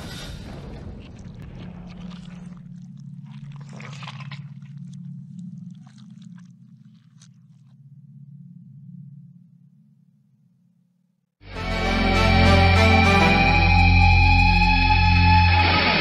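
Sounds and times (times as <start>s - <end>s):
low drone: 11.4s - 16.0s.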